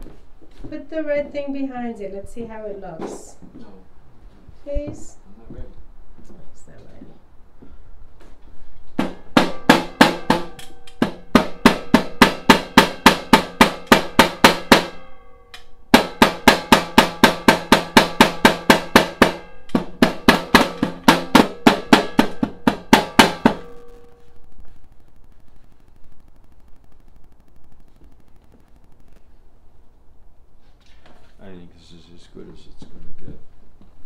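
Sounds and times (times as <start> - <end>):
mallet striking steel pipe: 9.0 - 24.1.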